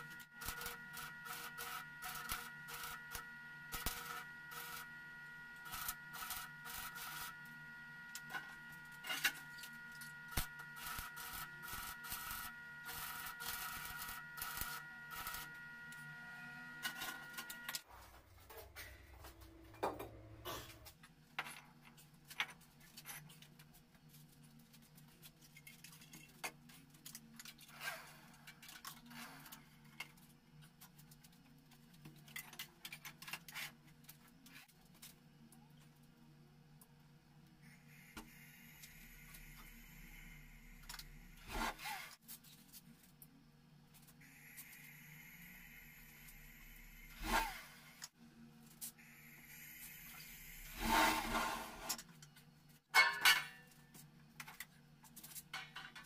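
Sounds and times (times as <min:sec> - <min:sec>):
steady high whine: 0:00.0 - 0:17.9, 0:37.8 - 0:41.5, 0:44.2 - 0:48.1.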